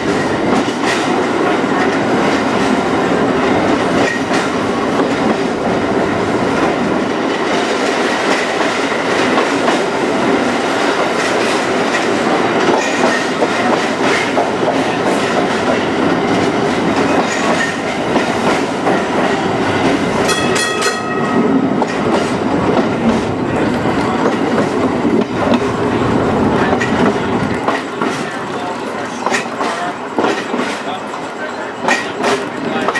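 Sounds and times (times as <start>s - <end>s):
streetcar wheels clicking on rails: 0.0s - 32.9s
repeated high ringing tone: 20.3s - 21.6s.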